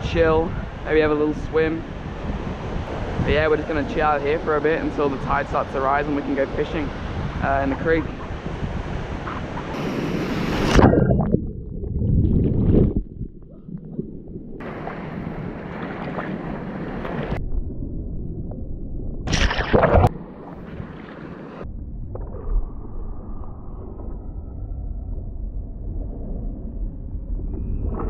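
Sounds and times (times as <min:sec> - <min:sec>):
wind buffeting microphone: 0:00.0 - 0:17.7
surf washing on beach: 0:00.2 - 0:10.9, 0:14.6 - 0:17.4.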